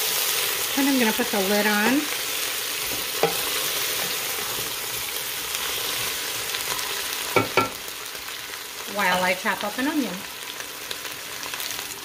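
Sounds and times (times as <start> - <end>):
potatoes sizzling in oil: 0.0 - 12.0.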